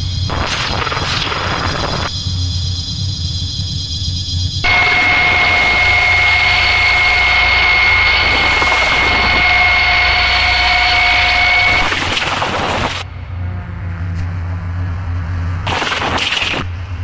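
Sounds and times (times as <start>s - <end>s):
low hum: 0.0s - 17.0s
steady piercing tones: 0.0s - 17.0s
loud dense hiss: 4.6s - 13.1s.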